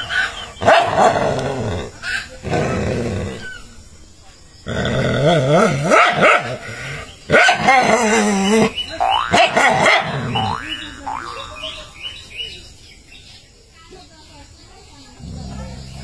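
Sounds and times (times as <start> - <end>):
dog barking and growling: 0.0 - 3.6, 4.7 - 10.6.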